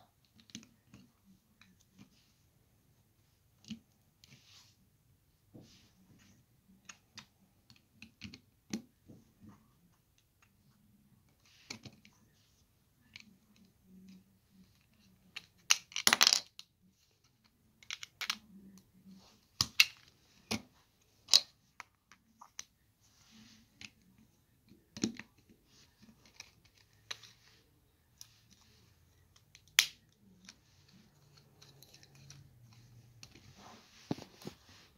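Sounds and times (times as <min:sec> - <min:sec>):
plastic bricks clicking: 0:15.4 - 0:16.6, 0:17.8 - 0:18.4.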